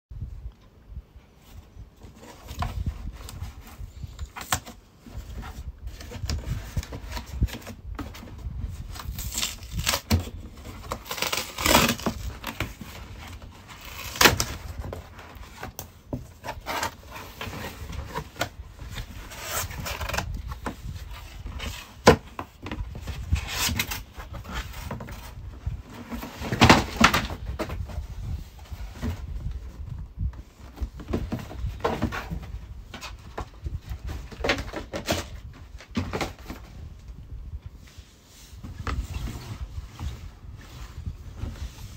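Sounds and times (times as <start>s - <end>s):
cardboard flaps scraping and rustling: 1.4s - 41.9s
cardboard strip tearing: 9.0s - 12.8s, 13.7s - 14.6s.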